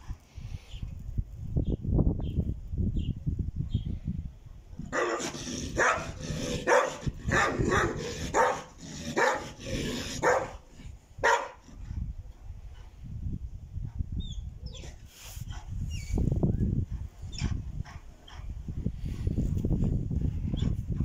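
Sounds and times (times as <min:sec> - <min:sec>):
dog barking: 0:04.9 - 0:10.6, 0:11.2 - 0:11.6.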